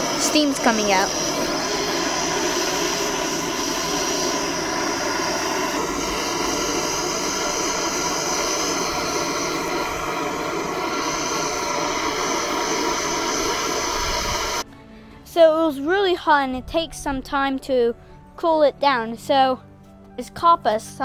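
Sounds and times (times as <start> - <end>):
blowtorch hissing: 0.0 - 14.7.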